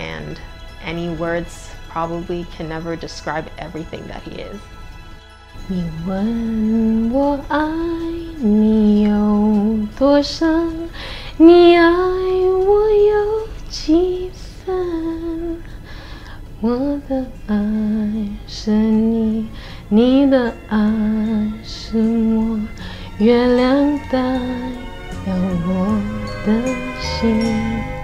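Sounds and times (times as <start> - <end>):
woman singing slow melody: 5.6 - 15.7, 16.4 - 28.0.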